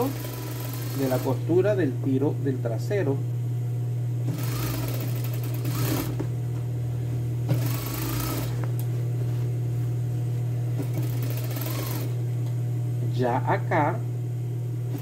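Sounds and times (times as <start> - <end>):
sewing machine stitching: 0.0 - 1.4, 4.3 - 6.2, 7.5 - 8.6, 10.8 - 12.2
low hum: 5.6 - 15.0.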